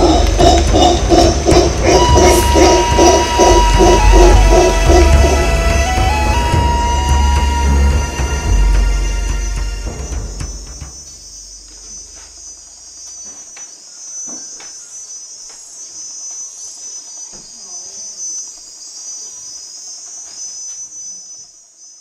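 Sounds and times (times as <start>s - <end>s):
background music: 0.0s - 11.3s
insect chorus shrilling: 0.0s - 22.0s.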